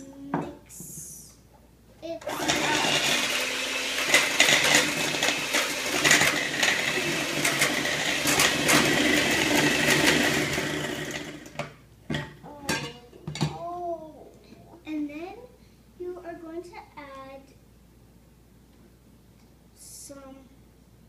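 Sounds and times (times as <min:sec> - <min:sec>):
electric hand mixer running: 0:02.2 - 0:11.7.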